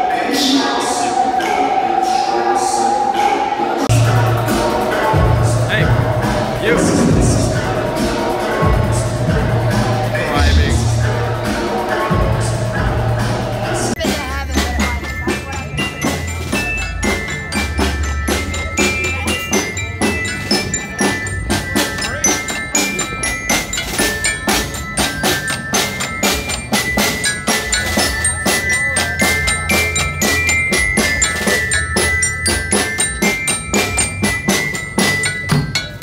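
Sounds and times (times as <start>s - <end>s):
low bass note: 6.6s - 7.9s
glockenspiel notes: 13.9s - 36.0s.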